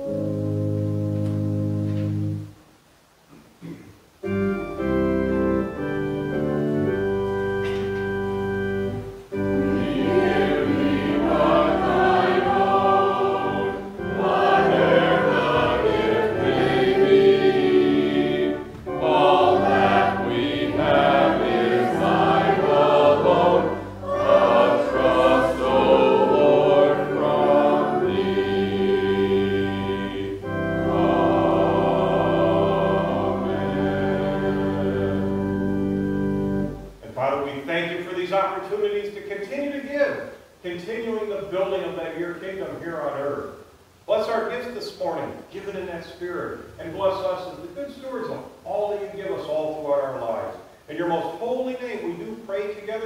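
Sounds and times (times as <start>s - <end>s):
church organ playing: 0.0s - 2.5s, 4.2s - 37.2s
voices singing a hymn: 6.2s - 36.9s.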